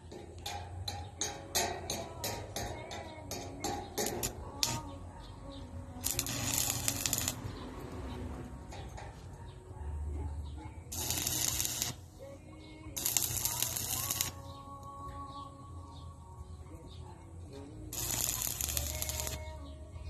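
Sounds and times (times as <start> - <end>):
arc welding crackling: 0.0 - 4.9, 6.0 - 7.7, 10.9 - 15.0, 17.8 - 19.6.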